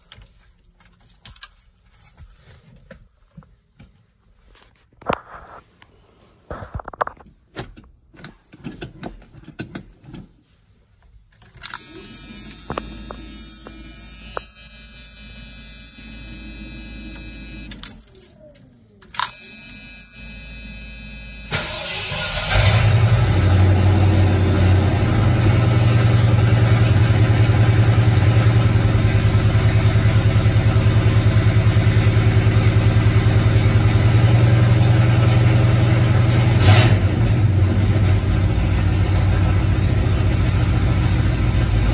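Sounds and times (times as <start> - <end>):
keys jingling and clicking: 0.0 - 2.3, 11.3 - 12.0, 17.7 - 19.7
steady electrical hum: 11.0 - 21.6
engine cranking and starting: 21.5 - 23.8.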